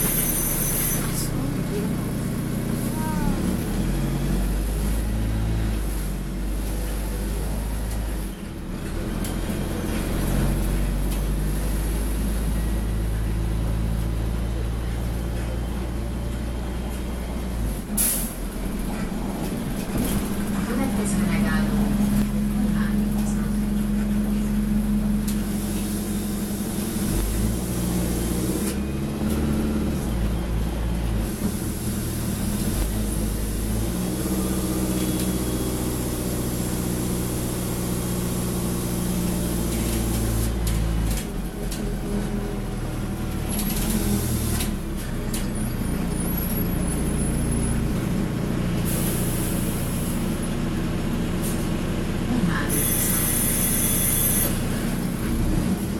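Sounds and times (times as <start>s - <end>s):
bus engine heard from inside: 0.0s - 55.9s
hiss: 48.9s - 50.2s.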